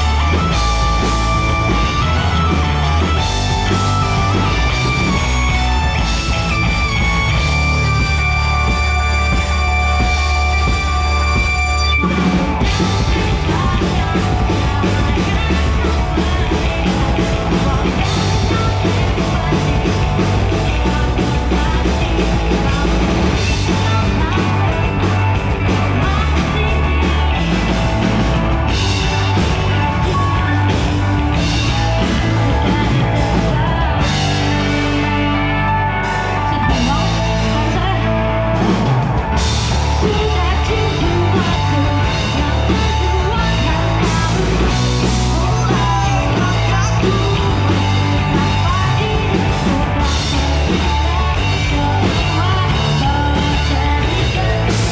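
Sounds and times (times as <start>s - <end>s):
drum kit: 0.0s - 54.9s
electric guitar: 0.0s - 54.9s
woman singing into a microphone: 12.6s - 27.7s, 28.7s - 38.4s, 39.9s - 54.9s.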